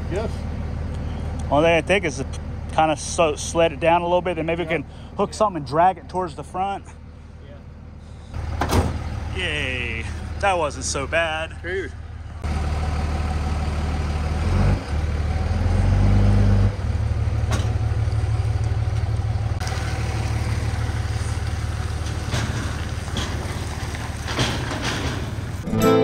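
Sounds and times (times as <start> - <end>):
pickup truck engine idling: 0.0 - 14.4.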